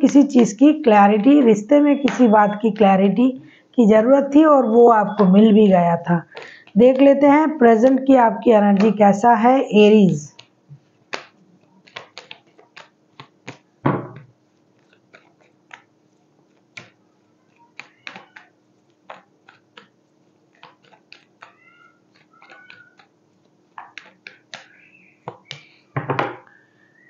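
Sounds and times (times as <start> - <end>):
cards being shuffled: 10.3 - 25.8
thump: 13.8 - 14.2
faint wavering high calls: 26.4 - 27.0.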